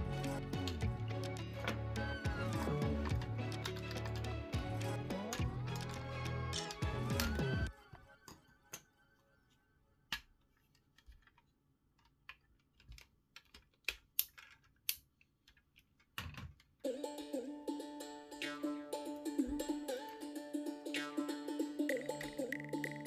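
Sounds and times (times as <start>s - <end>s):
background music: 0.0s - 10.2s, 16.8s - 23.0s
plastic toy parts clicking: 3.0s - 4.4s, 5.3s - 7.4s, 10.1s - 16.8s.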